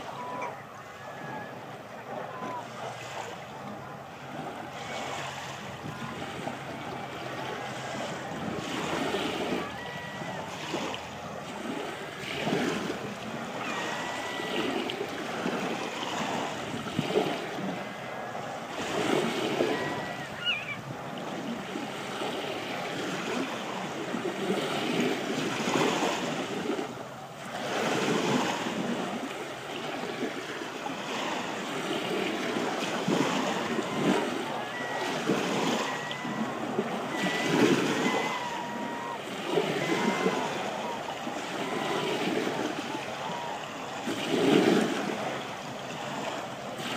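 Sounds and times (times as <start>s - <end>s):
faint gull calls: 0.0s - 2.9s, 9.4s - 11.0s, 13.4s - 16.5s, 19.3s - 20.9s, 33.1s - 45.3s
small waves lapping on shore: 0.0s - 46.9s
wind buffeting microphone: 3.6s - 46.9s.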